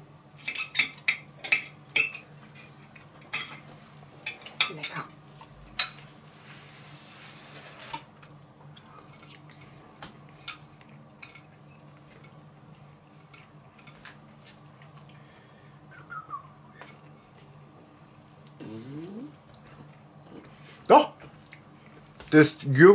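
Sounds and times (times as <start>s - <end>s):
low steady hum: 0.0s - 22.9s.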